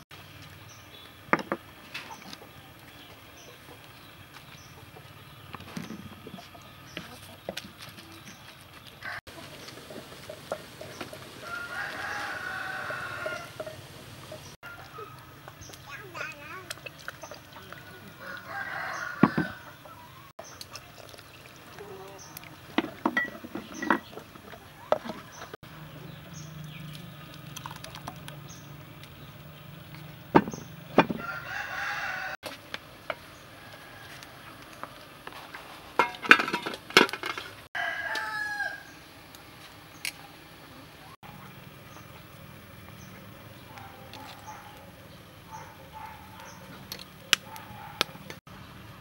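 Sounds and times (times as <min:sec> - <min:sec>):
rooster crowing: 0:11.4 - 0:13.7, 0:18.2 - 0:20.1, 0:31.2 - 0:32.4, 0:37.8 - 0:39.0
liquid pouring into mortar: 0:27.3 - 0:28.4.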